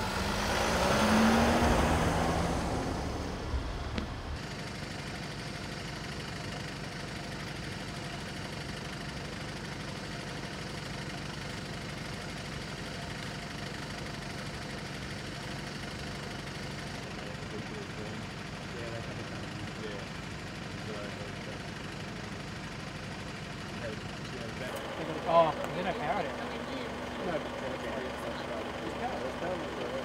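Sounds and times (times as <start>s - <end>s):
vehicle driving past: 0.0s - 4.4s
vehicle engine idling: 0.0s - 30.0s.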